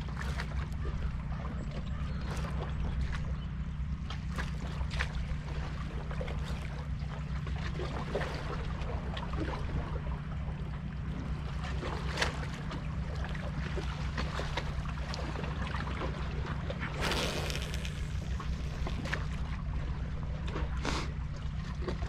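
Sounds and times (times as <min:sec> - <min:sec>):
small waves lapping on rocks: 0:11.3 - 0:19.8.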